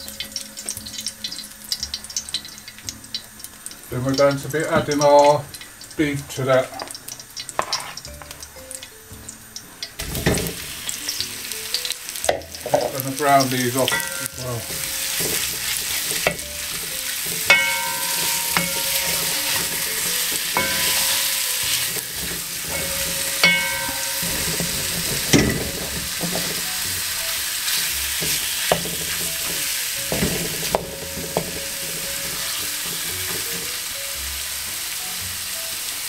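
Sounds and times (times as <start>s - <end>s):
meat sizzling in oil: 0.0s - 36.0s
wooden spoon knocking on pot: 13.9s - 27.4s, 28.1s - 33.7s.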